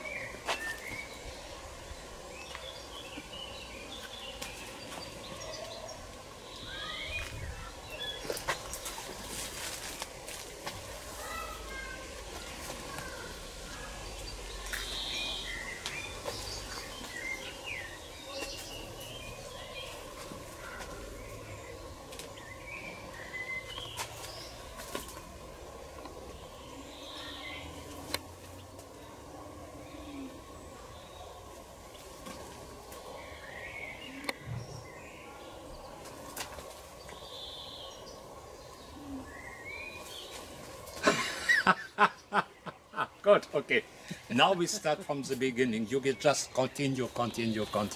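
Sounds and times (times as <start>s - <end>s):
outdoor background noise: 0.0s - 47.9s
small birds chirping: 0.0s - 47.9s.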